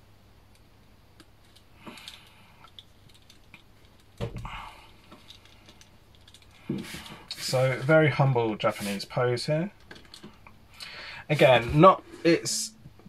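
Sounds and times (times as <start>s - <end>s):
plastic figure clicks and rustles: 1.2s - 4.4s, 5.0s - 7.5s.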